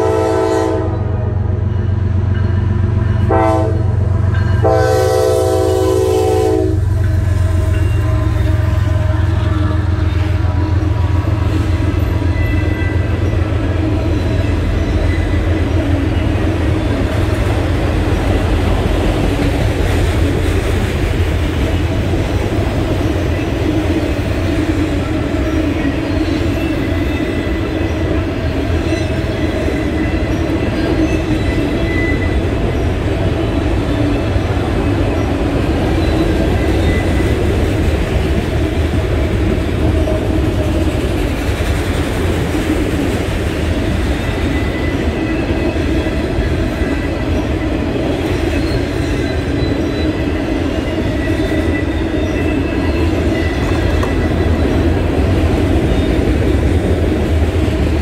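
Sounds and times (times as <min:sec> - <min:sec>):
train air horn blast: 0:00.0 - 0:01.5, 0:03.3 - 0:10.8
train wheels rumbling on rail: 0:00.0 - 0:58.0.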